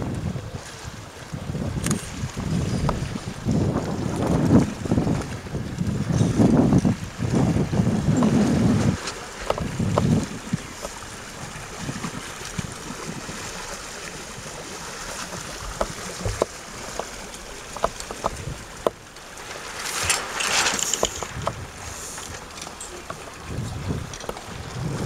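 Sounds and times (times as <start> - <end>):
wind buffeting microphone: 0.0 - 19.1, 19.9 - 25.0
lapping water: 1.7 - 25.0
sharp clicks and knocks: 17.8 - 19.0, 20.0 - 21.6.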